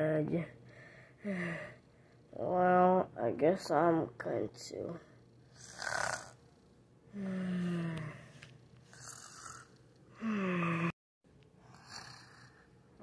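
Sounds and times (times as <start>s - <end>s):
breathy in-breath: 0.7s - 1.8s, 10.1s - 10.9s
person pretend snoring: 5.5s - 6.4s, 8.9s - 11.0s, 11.6s - 12.7s.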